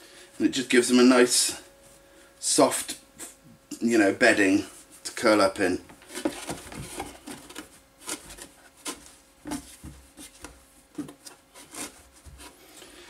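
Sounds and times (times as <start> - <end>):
liners rustling in cardboard box: 6.0 - 12.8.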